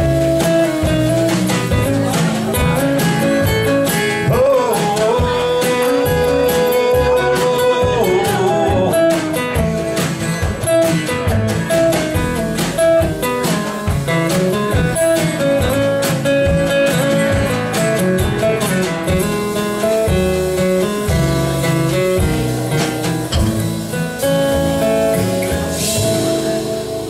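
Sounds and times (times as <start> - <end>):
acoustic guitars picking melody: 0.0 - 27.0
drums: 0.0 - 27.0
upright bass: 0.0 - 27.0.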